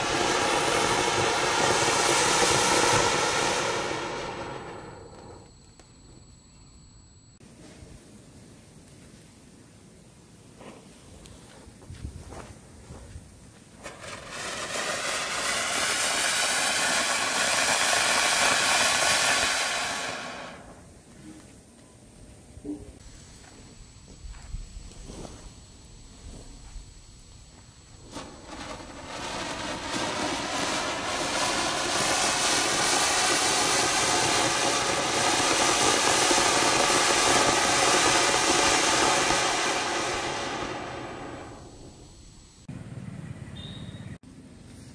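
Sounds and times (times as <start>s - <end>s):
firework fountain hissing: 0.0s - 5.4s, 7.4s - 23.0s, 25.0s - 44.9s.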